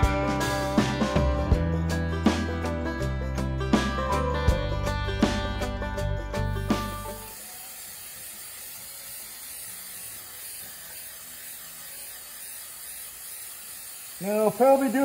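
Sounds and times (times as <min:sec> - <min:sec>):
aerosol can spraying: 0:06.3 - 0:15.0.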